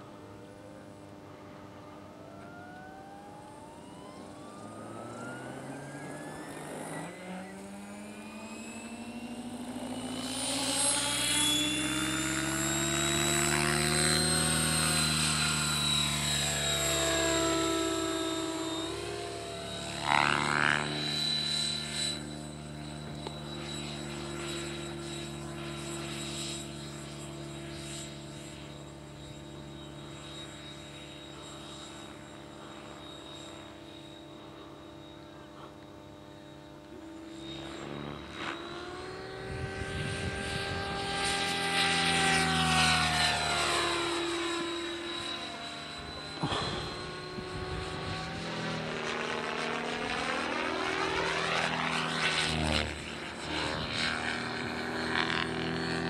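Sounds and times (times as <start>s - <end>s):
model helicopter motor and rotor whine: 0.0s - 56.0s.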